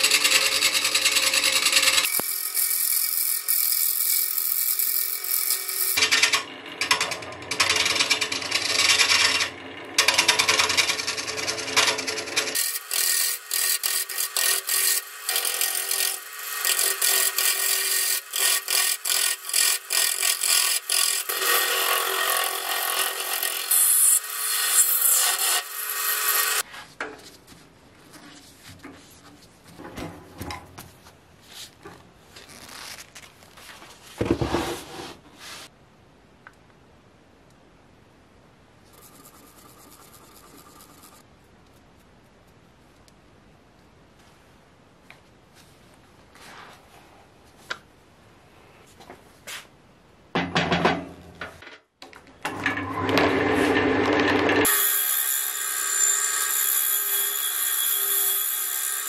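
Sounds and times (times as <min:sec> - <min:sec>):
wood lathe gouge scraping: 0:06.1 - 0:26.6.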